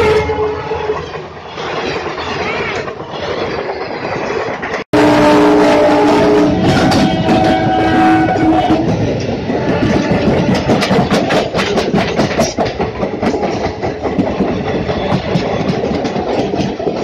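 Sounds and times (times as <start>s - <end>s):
locomotive horn: 0.0s - 1.0s, 4.9s - 10.9s
train wheels clattering over rail joints: 6.2s - 17.0s.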